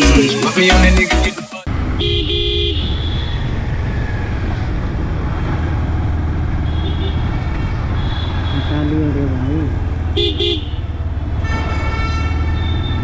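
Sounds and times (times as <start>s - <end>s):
motorcycle engine running: 1.7s - 11.5s
vehicle horn beeping: 2.0s - 3.4s, 6.7s - 9.0s, 10.2s - 10.8s, 11.4s - 13.0s.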